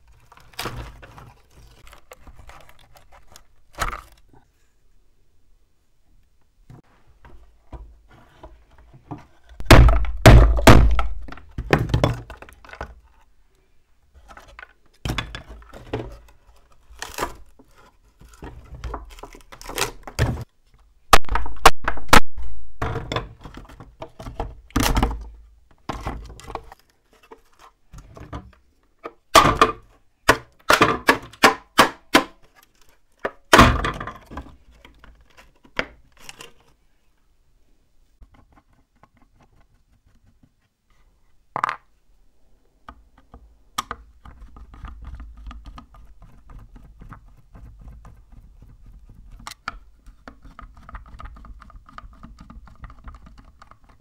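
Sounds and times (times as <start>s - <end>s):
particleboard cracking and crunching: 9.6s - 12.9s, 16.8s - 17.5s.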